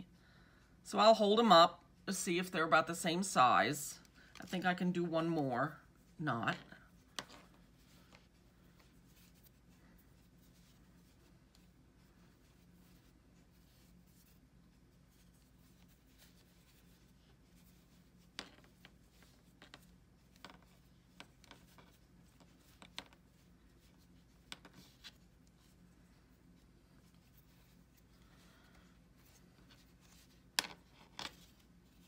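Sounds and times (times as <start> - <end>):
low steady hum: 0.0 - 32.0
soft clicks and rubs of fleece: 6.9 - 32.0.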